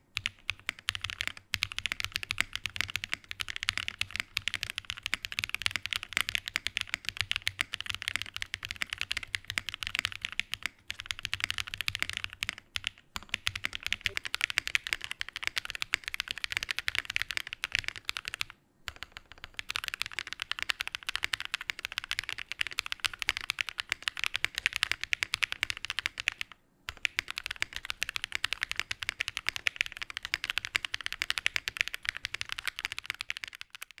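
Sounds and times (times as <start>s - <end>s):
mechanical keyboard typing: 0.0s - 34.0s.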